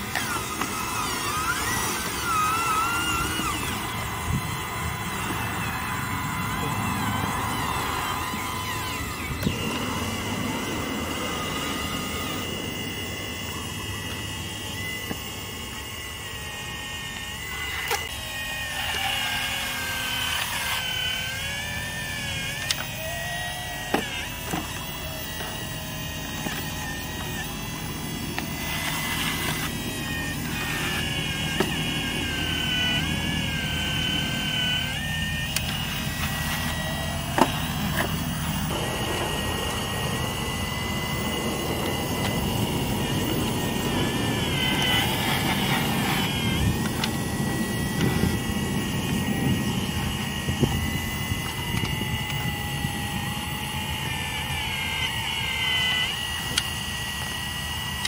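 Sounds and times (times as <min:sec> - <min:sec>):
hydraulic pump motor whining: 0:00.0 - 0:58.0
rough low mechanical noise: 0:00.0 - 0:58.0.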